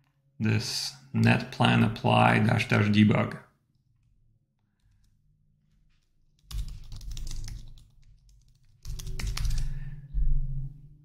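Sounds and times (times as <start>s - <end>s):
keyboard typing: 6.0s - 10.0s.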